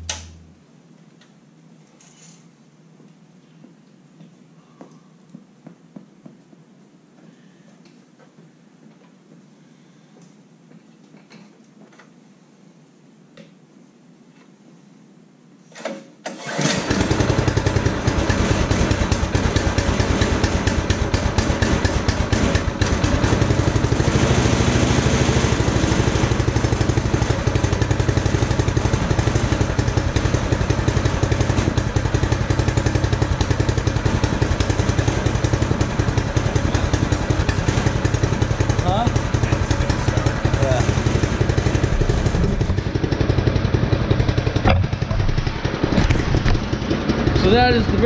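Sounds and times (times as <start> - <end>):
recoil starter pull: 15.7 - 25.7
small engine fast idle: 16.4 - 48.0.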